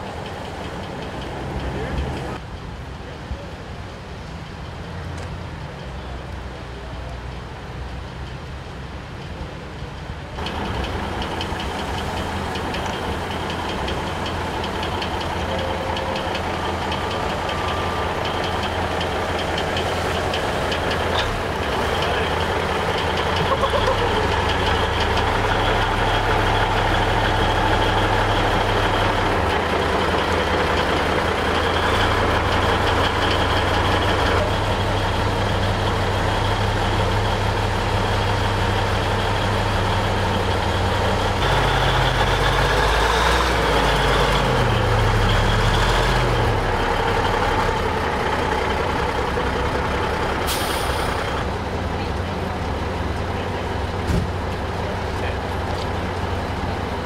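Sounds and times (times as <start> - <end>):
truck diesel engine running: 0.0 - 2.4, 10.2 - 57.0
air brake hiss: 50.5 - 51.2.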